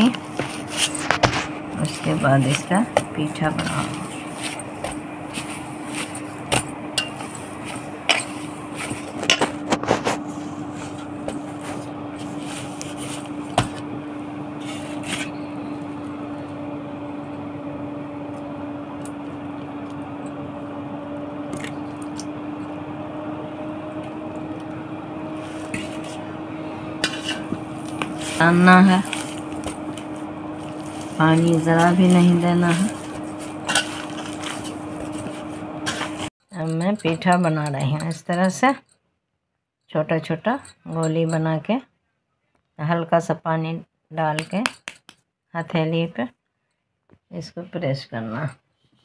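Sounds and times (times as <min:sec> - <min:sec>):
steady low hum: 0:00.0 - 0:38.7.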